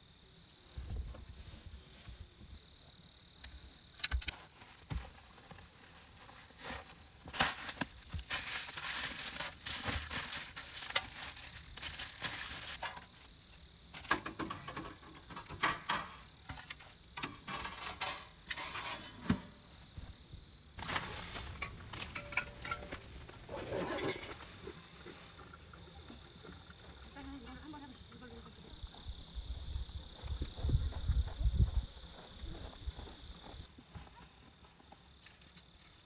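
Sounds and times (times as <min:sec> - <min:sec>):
bubble wrap crinkling: 0:07.4 - 0:12.9.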